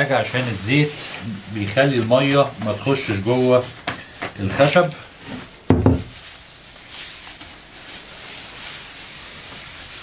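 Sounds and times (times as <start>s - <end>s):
gloved hand rubbing oil on board: 0.0s - 3.9s.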